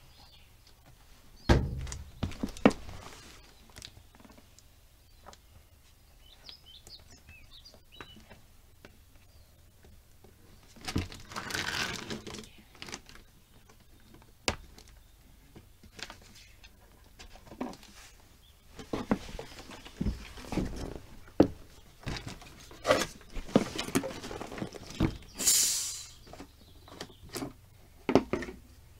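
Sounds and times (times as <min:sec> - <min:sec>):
rustling scrape: 0:02.8 - 0:03.5.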